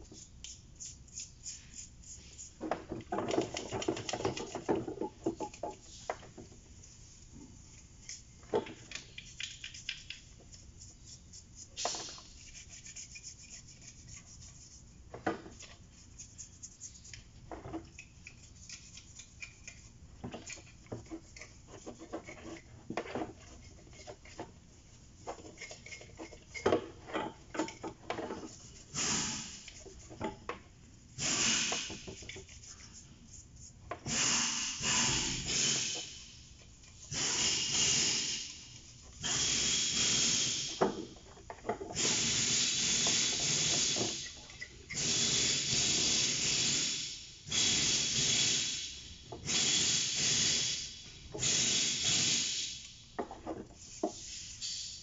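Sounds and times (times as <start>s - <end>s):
toothbrush scrubbing metal parts: 0.0s - 2.6s, 7.6s - 26.7s, 31.8s - 33.8s, 35.3s - 39.7s.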